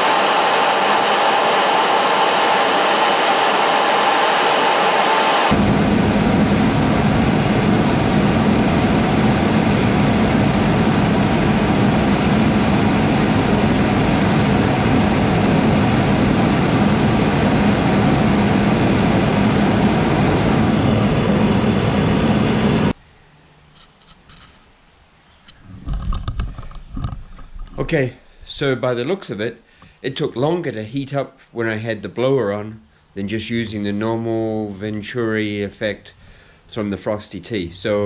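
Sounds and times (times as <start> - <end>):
gas burner flame rushing: 0.0 - 23.0.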